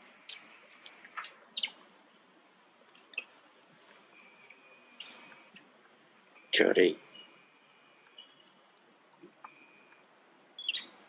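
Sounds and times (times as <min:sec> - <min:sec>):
monkeys squeaking and chirping: 0:00.2 - 0:01.8, 0:03.0 - 0:03.4, 0:04.2 - 0:05.7, 0:10.6 - 0:11.0.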